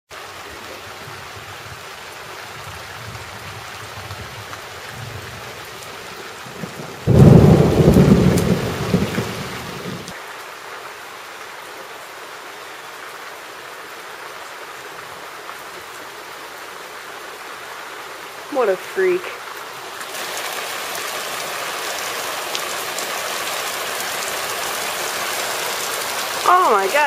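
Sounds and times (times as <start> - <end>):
steady rain falling: 0.1 - 27.0
thunderclap rumbling: 6.4 - 10.2.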